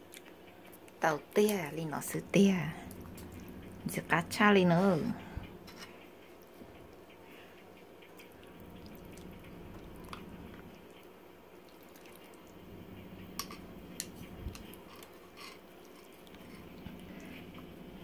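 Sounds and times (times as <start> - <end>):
broth sloshing and dripping: 8.1 - 13.4.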